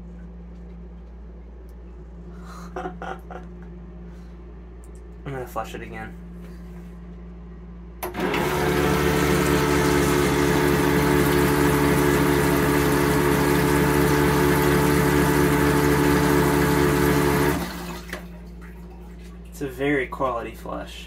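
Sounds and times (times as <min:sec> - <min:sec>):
water rushing round toilet bowl: 0:08.0 - 0:19.5
flush pump click: 0:08.0 - 0:19.6
pump motor humming: 0:08.0 - 0:19.6.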